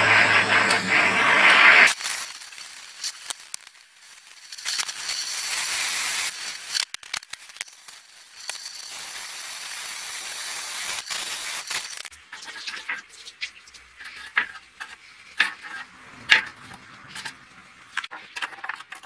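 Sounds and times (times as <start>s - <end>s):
melting wax hissing: 0.0s - 15.9s
clicks and crackles: 1.7s - 9.1s.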